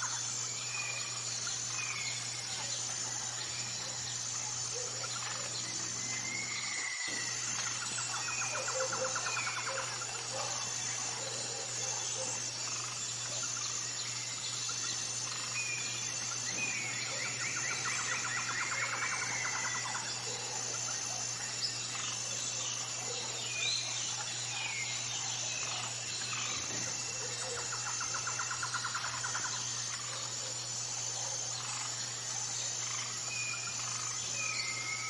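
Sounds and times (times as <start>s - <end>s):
birds chirping and trilling: 0.0s - 35.0s
pulsing insect buzz: 0.0s - 35.0s.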